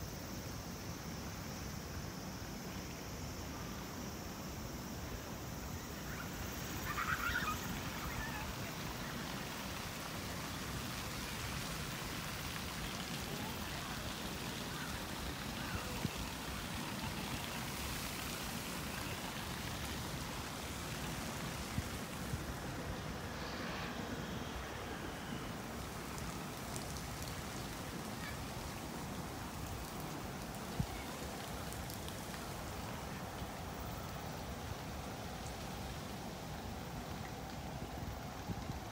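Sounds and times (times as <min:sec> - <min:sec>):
outdoor ambient hiss: 0:00.0 - 0:38.9.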